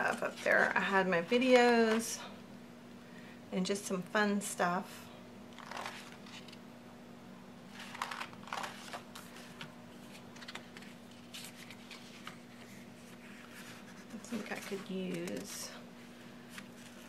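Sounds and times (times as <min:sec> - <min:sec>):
faint steady hum: 0:00.0 - 0:17.0
paper rustling: 0:05.6 - 0:06.6, 0:07.7 - 0:17.0.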